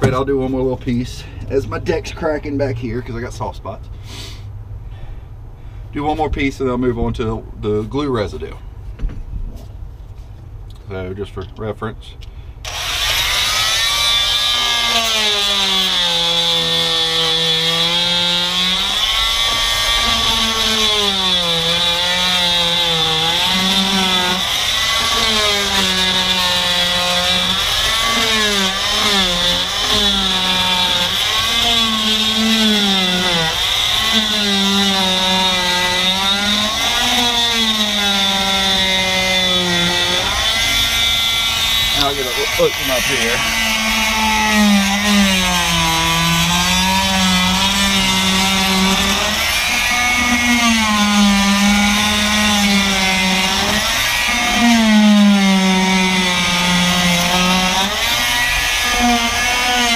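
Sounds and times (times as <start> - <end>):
oscillating multi-tool motor whine: 12.6 - 59.9.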